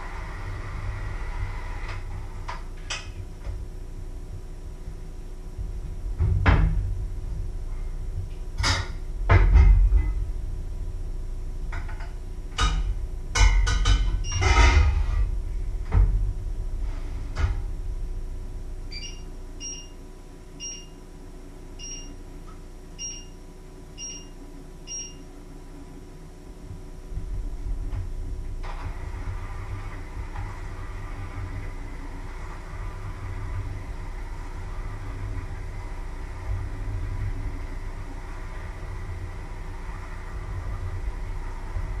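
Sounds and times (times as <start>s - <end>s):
clatter of pots and dishes: 11.8s - 15.0s
short electronic beeps: 18.9s - 20.0s, 20.6s - 21.0s, 21.8s - 22.2s, 23.0s - 23.4s, 24.0s - 25.3s.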